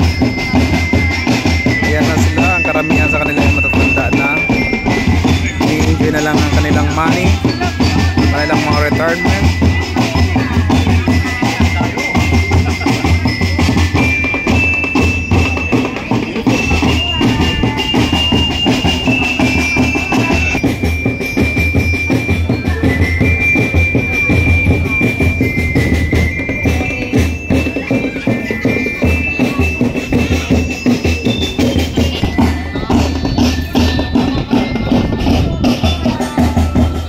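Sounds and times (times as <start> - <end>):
high held-note melody: 0.0 - 37.0
loud drum beat: 0.0 - 37.0.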